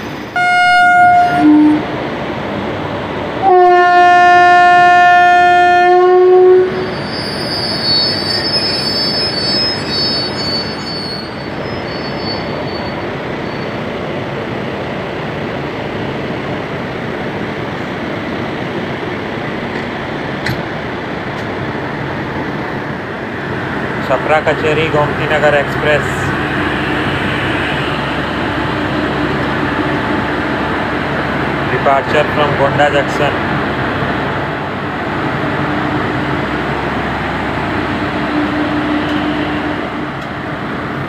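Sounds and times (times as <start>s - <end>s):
train rumbling: 0.0s - 41.0s
train horn blasts: 0.4s - 1.9s, 3.4s - 6.9s, 38.0s - 40.2s
thin high squeal: 6.9s - 13.8s.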